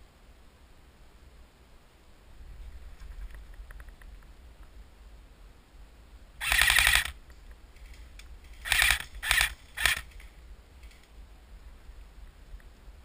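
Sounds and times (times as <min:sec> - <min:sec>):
airsoft rifle firing bursts: 0:06.4 - 0:07.2, 0:08.5 - 0:10.2.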